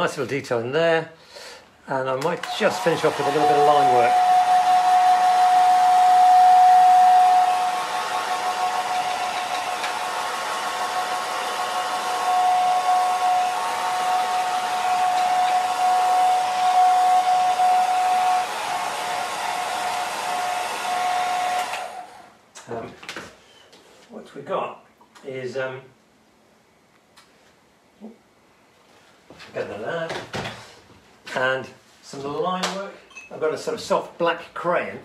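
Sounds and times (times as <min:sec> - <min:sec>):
hair dryer blowing: 0:02.3 - 0:22.4.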